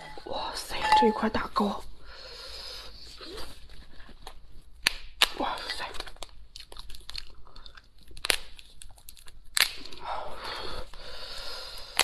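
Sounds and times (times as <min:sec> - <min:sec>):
lobster shell cracking: 0:04.8 - 0:10.0.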